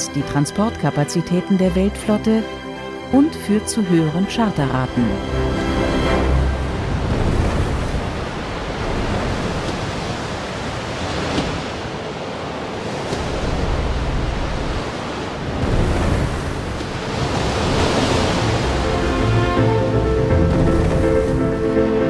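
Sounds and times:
sea water rushing: 0.0 - 22.0
wind: 5.1 - 22.0.

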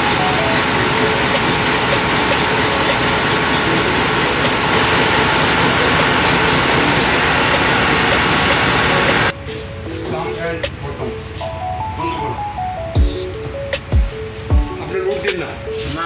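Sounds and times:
diesel generator engine running: 0.0 - 9.4.

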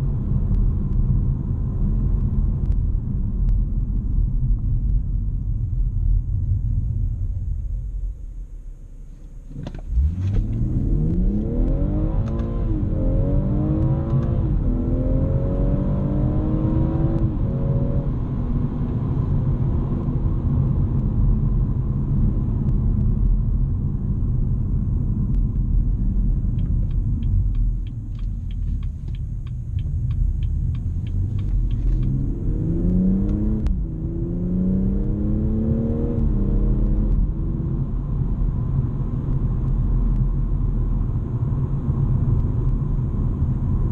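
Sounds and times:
road rumble: 0.0 - 43.9
car engine revving through upshifts: 9.5 - 18.6, 29.8 - 37.8
even ticks: 26.5 - 32.2.

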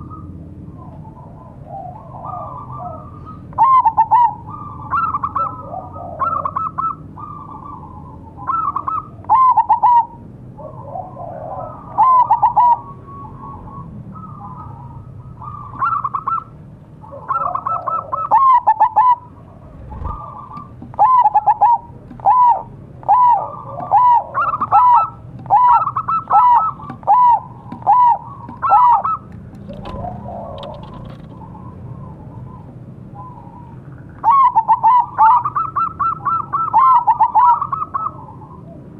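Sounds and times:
dove cooing: 0.0 - 38.9.

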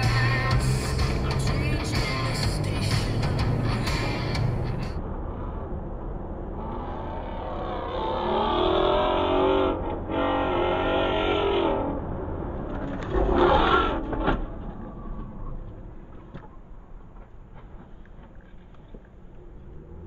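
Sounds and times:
car engine revving: 0.0 - 5.0
low road hum: 0.0 - 20.0.

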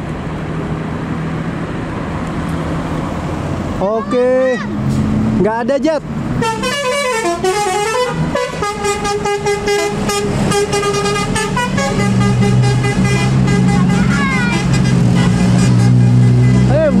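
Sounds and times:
tuned air horns playing melody: 6.4 - 17.0.

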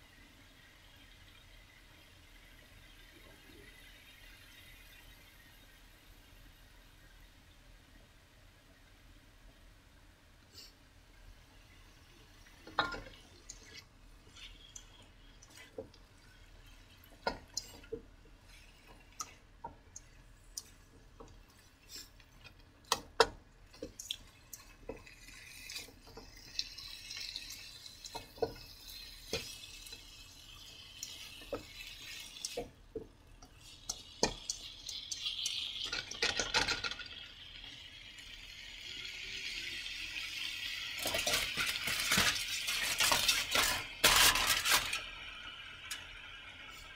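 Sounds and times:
frying sizzle: 0.0 - 46.9
spatula scraping a wok: 41.0 - 45.1.

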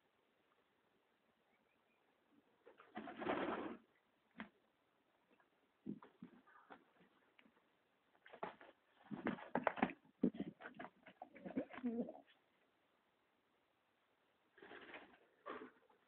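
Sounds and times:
pigeons cooing: 11.3 - 12.3.

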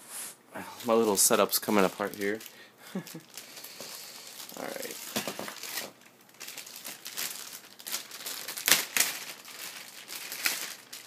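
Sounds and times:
packaging crinkling and rustling: 0.8 - 11.0.

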